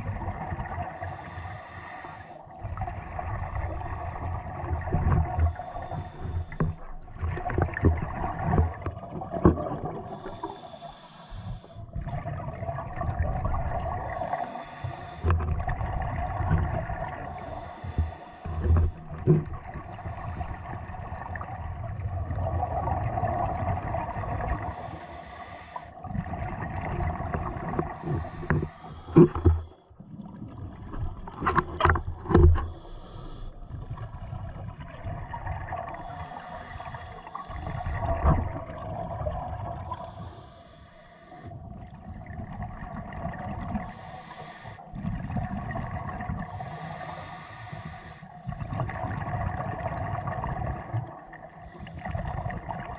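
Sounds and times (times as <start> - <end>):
regulator breathing hiss underwater: 1.0 - 2.5, 5.3 - 6.8, 10.1 - 11.9, 13.9 - 15.4, 17.1 - 19.2, 24.4 - 26.0, 27.7 - 29.8, 32.6 - 33.7, 35.9 - 38.3, 39.9 - 41.6, 43.7 - 44.9, 46.3 - 48.7, 51.6 - 52.3
low bubbling rumble: 11.8 - 14.3, 15.3 - 24.6.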